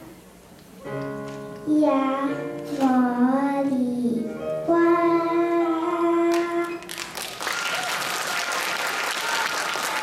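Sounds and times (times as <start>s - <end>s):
child singing: 1.6s - 6.8s
audience applause: 6.9s - 10.0s.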